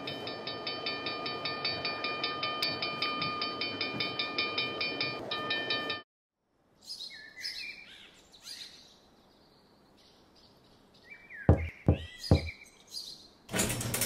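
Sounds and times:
birds chirping softly: 0:06.8 - 0:13.5
toy bucket knocking on garage door: 0:11.5 - 0:12.5.

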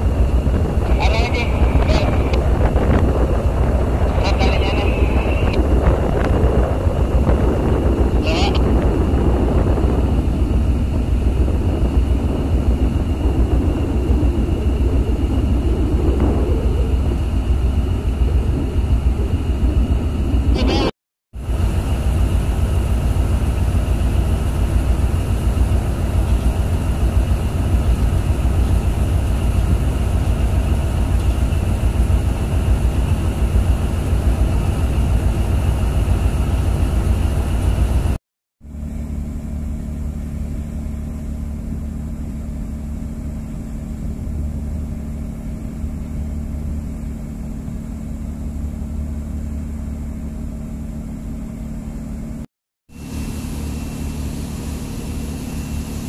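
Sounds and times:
boat diesel engine running: 0:00.0 - 0:56.0.

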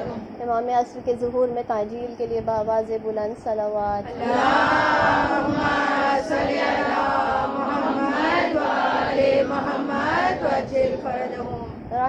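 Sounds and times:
crowd chanting in unison: 0:04.1 - 0:11.7.

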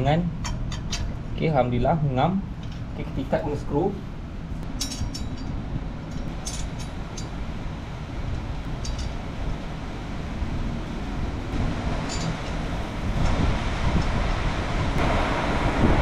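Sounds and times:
metallic clinks of screws and tool: 0:04.8 - 0:05.5, 0:06.1 - 0:07.4, 0:08.8 - 0:09.2, 0:12.0 - 0:12.6.

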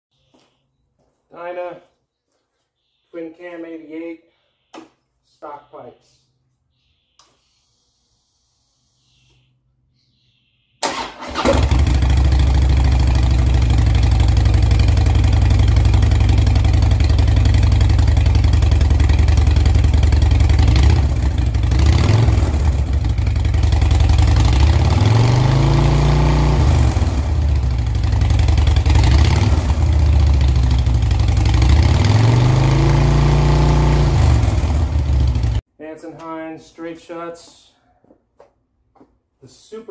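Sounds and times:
motorcycle engine idling and revving: 0:11.3 - 0:35.6.

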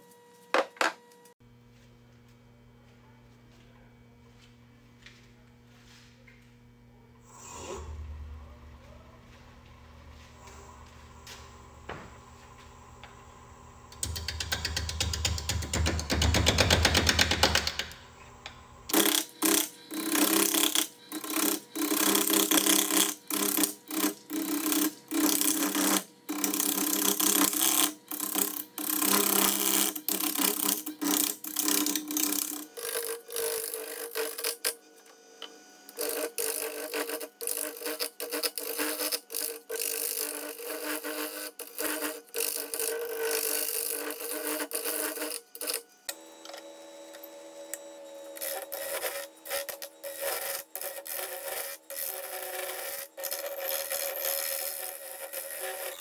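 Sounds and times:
fast buzzing machine: 0:13.9 - 0:56.0
lathe tool cutting wood: 0:18.9 - 0:56.0.

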